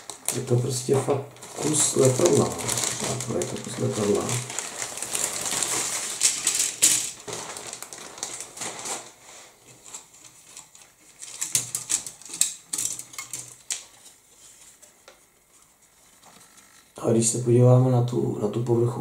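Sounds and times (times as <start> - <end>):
plastic clicks and rustling: 1.4 - 9.1, 9.7 - 17.0.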